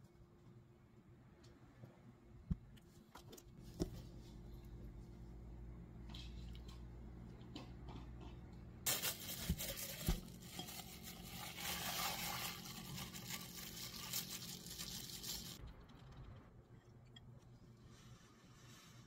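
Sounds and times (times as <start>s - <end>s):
plastic bag crinkling: 8.9s - 15.6s.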